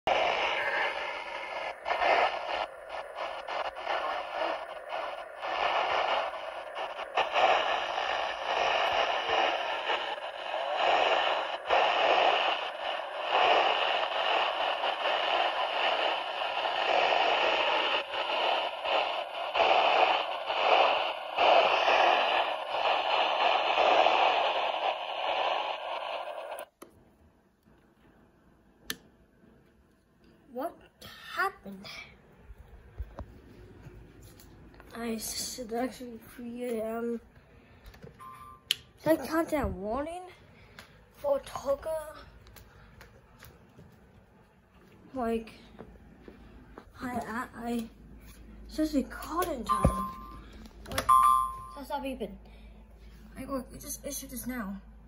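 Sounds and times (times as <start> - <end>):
weather radio broadcast static: 0.1 - 26.7, 39.0 - 40.0.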